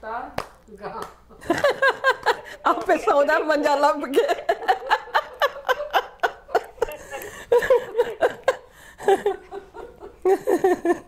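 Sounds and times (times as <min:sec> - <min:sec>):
hand clapping: 0:00.4 - 0:03.0
women laughing: 0:01.4 - 0:11.0.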